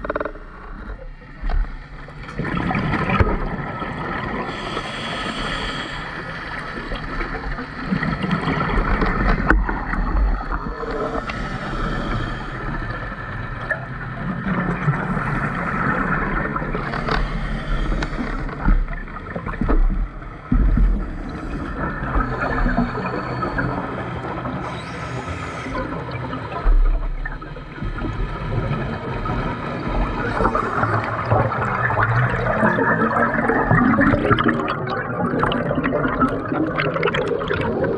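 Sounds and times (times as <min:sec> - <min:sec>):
bubbles rumbling and gurgling: 0:00.0 - 0:37.9
underwater hiss: 0:04.4 - 0:08.3, 0:10.8 - 0:13.5, 0:16.7 - 0:18.7, 0:24.6 - 0:26.2.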